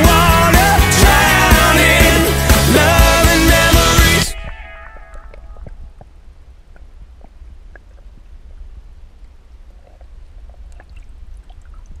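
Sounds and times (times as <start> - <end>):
underwater low rumble: 4.4 - 12.0
faint clicks and ticks: 4.9 - 11.7.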